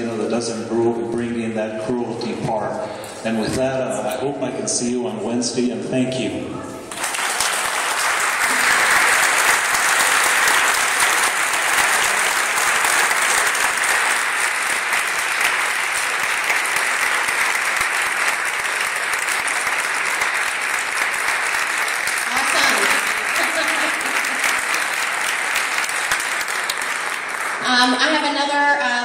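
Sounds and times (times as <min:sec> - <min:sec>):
crowd applauding: 0:06.9 - 0:28.6.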